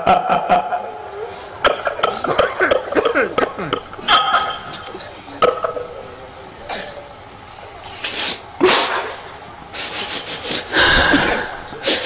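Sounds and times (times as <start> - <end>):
man crying: 0.0 - 5.4
sharp sniffs: 7.4 - 9.0, 9.8 - 12.0.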